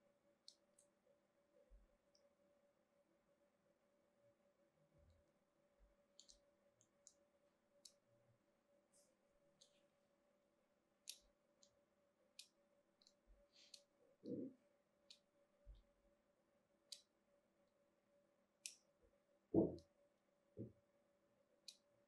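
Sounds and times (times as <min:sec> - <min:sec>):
blade scoring soap ticks: 0:11.0 - 0:11.8, 0:12.4 - 0:13.9, 0:16.9 - 0:17.1, 0:18.6 - 0:18.9, 0:21.6 - 0:21.9.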